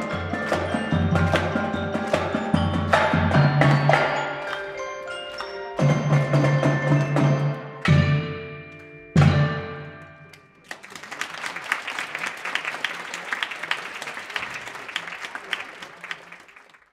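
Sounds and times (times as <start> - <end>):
marching percussion chords: 0.0 - 10.3
audience applauding: 10.6 - 16.9.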